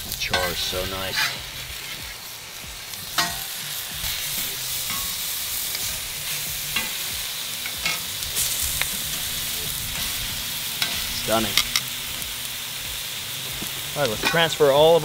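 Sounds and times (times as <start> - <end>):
vegetables sizzling on a griddle: 0.0 - 15.0
metal spatula scraping griddle: 0.2 - 2.2, 3.1 - 12.3.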